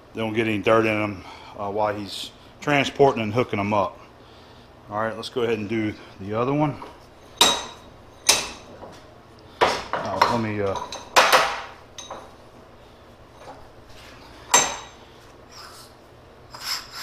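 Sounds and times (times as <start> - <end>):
sharp metallic clanks: 7.4 - 8.7, 14.5 - 15.0.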